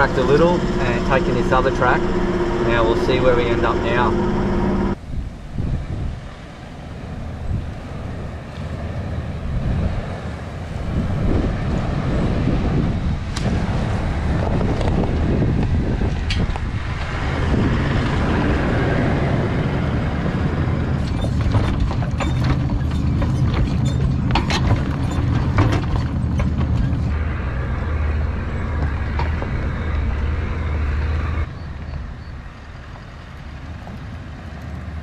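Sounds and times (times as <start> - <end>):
gravel and suspension rattling: 0.0 - 35.0
vehicle driving on dirt track: 0.0 - 35.0.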